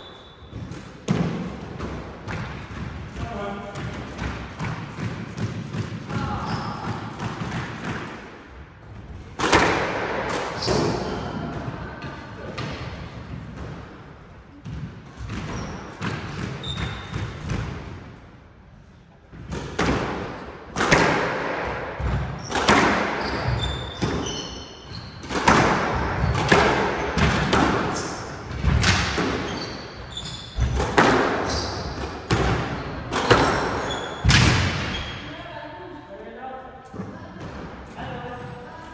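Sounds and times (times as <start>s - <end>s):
squash ball hits echoing: 0.0s - 18.2s, 19.3s - 35.3s
shoes squeaking on hardwood floor: 23.2s - 25.3s, 29.4s - 30.8s, 31.4s - 32.0s, 32.6s - 34.2s.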